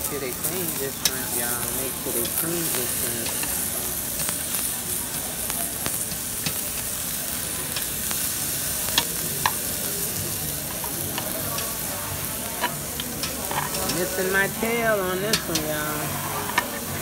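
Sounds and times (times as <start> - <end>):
meat sizzling on grill: 0.0 - 17.0
metal tongs clicking on grate: 0.7 - 3.5, 5.8 - 6.6, 8.9 - 9.6, 10.6 - 11.8, 12.5 - 16.8.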